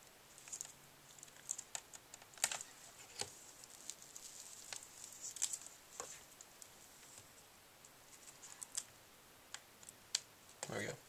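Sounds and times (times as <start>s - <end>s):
laptop parts clicking and tapping: 0.5s - 3.4s.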